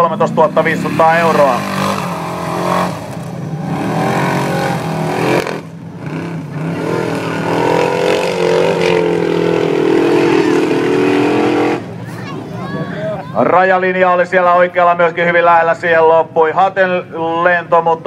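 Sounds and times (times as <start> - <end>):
car engine revving hard: 0.2 - 12.0.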